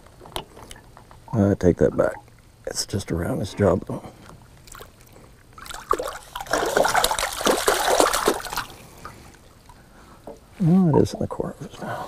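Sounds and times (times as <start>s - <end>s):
water splashing and sloshing: 3.6s - 10.6s.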